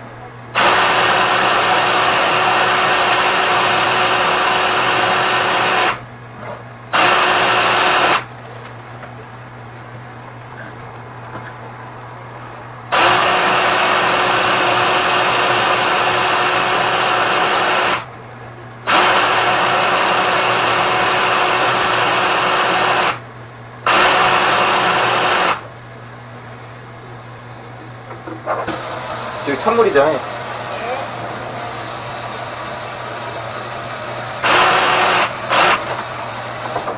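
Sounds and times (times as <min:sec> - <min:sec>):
power drill whining: 0:00.6 - 0:06.0, 0:06.9 - 0:08.3, 0:12.9 - 0:18.1, 0:18.8 - 0:23.2, 0:23.9 - 0:25.7, 0:28.5 - 0:36.9.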